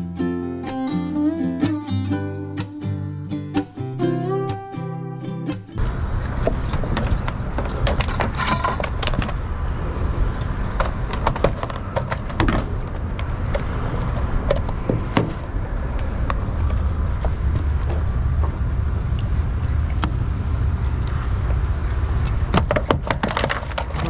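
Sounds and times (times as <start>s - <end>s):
guitar music: 0.0s - 5.9s
low rumble: 12.6s - 22.8s.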